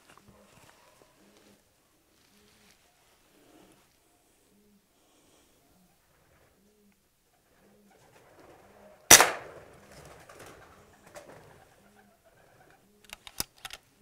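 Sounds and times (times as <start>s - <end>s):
rustling flurry: 0.0s - 4.1s
pigeons cooing softly: 0.0s - 14.0s
air rifle shot: 9.1s - 9.7s
sharp clicks: 13.0s - 13.8s.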